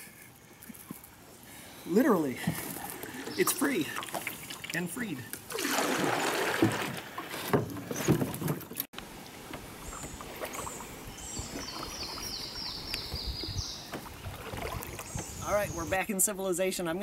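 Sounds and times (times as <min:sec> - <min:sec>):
moving water: 0:00.0 - 0:17.0
canoe paddle strokes in water: 0:02.3 - 0:15.8
paddle knocking on hull: 0:05.6 - 0:08.8, 0:11.4 - 0:15.4.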